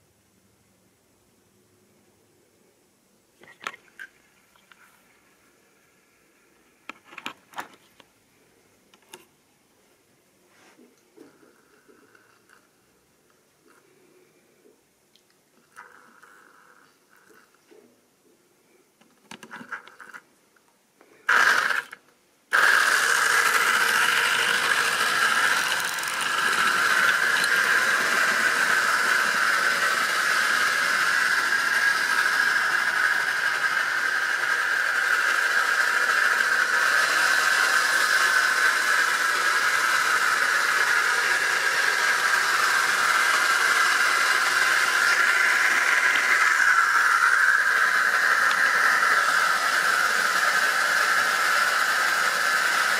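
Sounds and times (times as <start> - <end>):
model train motor whine: 21.2 - 52.9
wheel and rail noise: 21.3 - 52.9.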